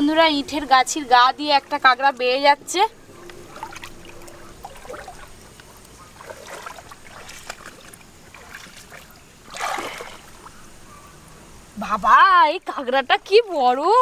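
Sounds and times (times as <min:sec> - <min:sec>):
water trickling and sloshing: 0:00.0 - 0:11.3
water splash: 0:03.5 - 0:05.4, 0:06.2 - 0:10.5.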